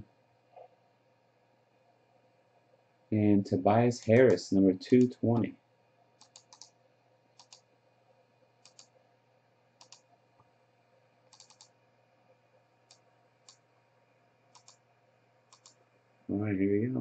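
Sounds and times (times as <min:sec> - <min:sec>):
mouse and keyboard clicks: 0:06.2 - 0:06.7, 0:07.4 - 0:07.6, 0:08.6 - 0:08.9, 0:09.8 - 0:10.1, 0:11.3 - 0:11.7, 0:14.5 - 0:14.8, 0:15.5 - 0:15.8.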